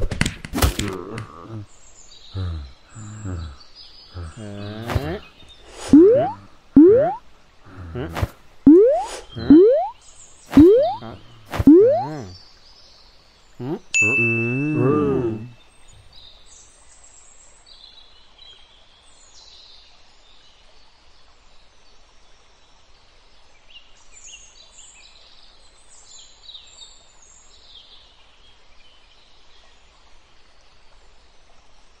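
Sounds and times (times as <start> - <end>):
birds chirping: 1.4 - 12.4
cartoon boing effect: 6.0 - 7.2, 8.7 - 9.9, 10.6 - 12.4, 14.0 - 15.5.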